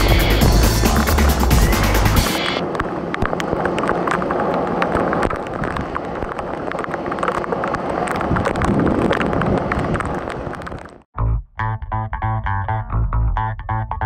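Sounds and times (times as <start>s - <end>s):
heavy rain downpour: 0.0s - 11.0s
wind buffeting microphone: 2.6s - 11.1s
raindrops ticking close by: 2.7s - 11.1s.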